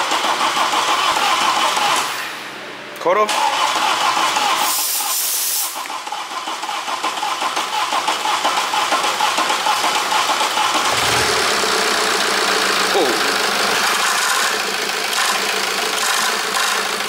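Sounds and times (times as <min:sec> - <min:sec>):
diesel engine cranking and starting: 0:00.0 - 0:02.5, 0:03.2 - 0:17.0.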